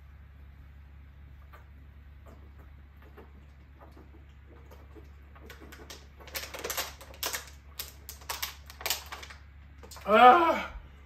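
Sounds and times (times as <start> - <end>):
almonds crunching: 5.3 - 10.1.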